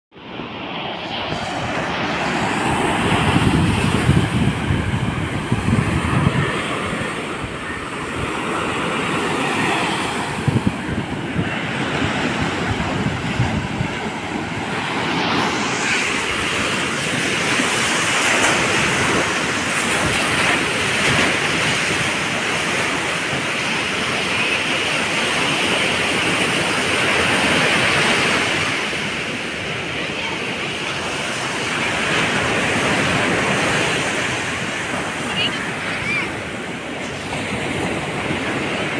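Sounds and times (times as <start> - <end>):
ocean waves breaking: 0.2 - 38.9
wind on microphone: 0.9 - 30.0.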